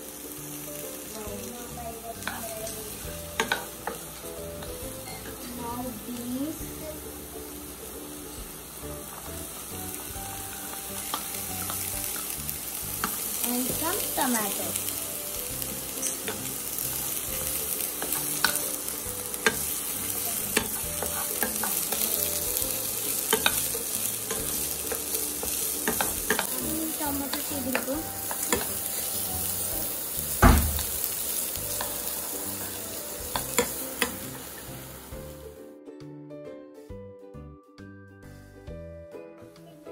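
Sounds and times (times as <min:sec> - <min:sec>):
vegetables sizzling in a wok: 0:00.0 - 0:35.6
loud knock: 0:30.4 - 0:30.9.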